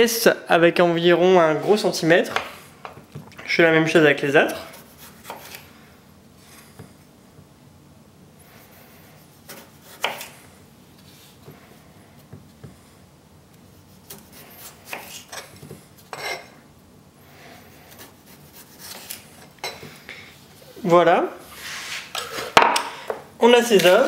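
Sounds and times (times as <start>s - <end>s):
knife cutting potatoes: 4.5s - 5.7s, 9.2s - 10.4s, 13.6s - 16.2s, 17.8s - 19.5s.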